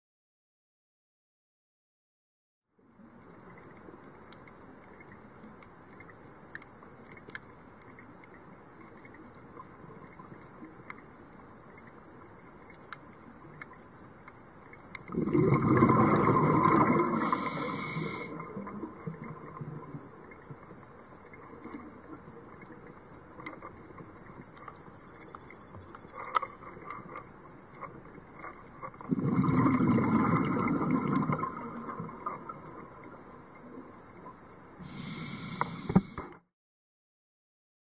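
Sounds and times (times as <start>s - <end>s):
exhaled bubbles rushing underwater: 15.0s - 20.5s, 29.0s - 33.9s
regulator hiss and clicks: 17.2s - 29.1s, 31.1s - 36.5s.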